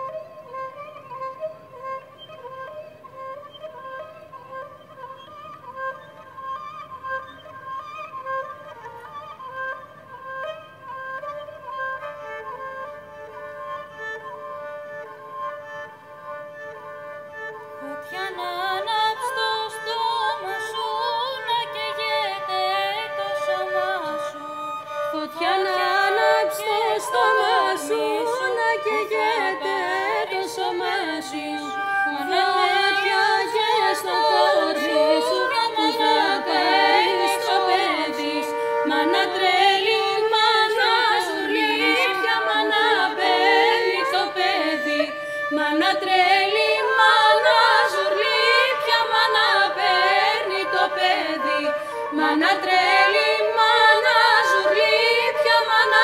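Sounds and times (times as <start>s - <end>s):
women singing folk melody: 17.7s - 56.0s.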